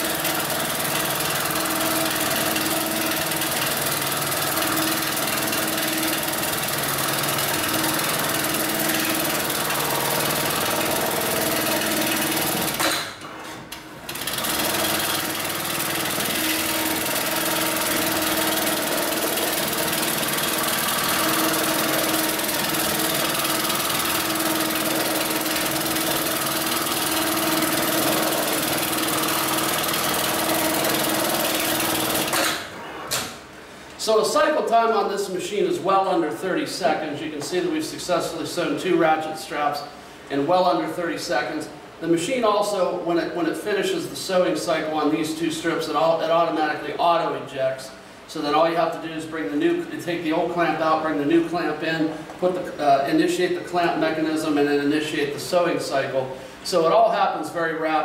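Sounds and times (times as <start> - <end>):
industrial sewing machine stitching: 0.0 - 33.4.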